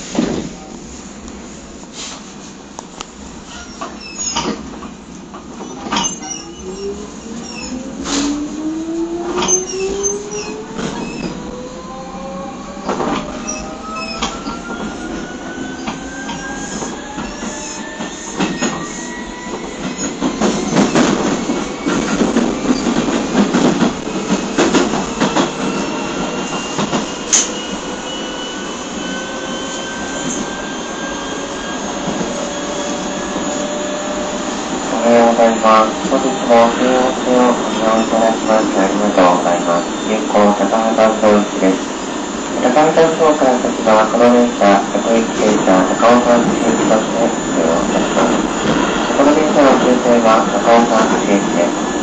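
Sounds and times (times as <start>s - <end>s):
train rumbling: 0.0s - 52.0s
rail-joint clicks: 2.8s - 8.4s, 12.8s - 27.6s
train traction motor whine: 2.8s - 52.0s.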